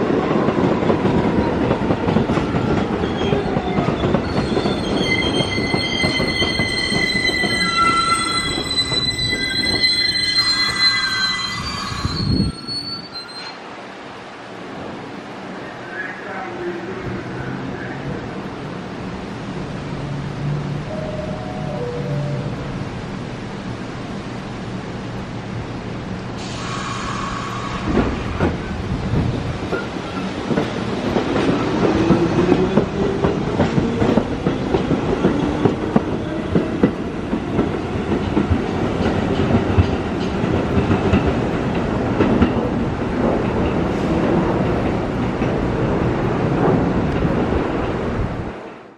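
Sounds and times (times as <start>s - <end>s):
train wheels clacking over rail joints: 27.8s - 48.3s.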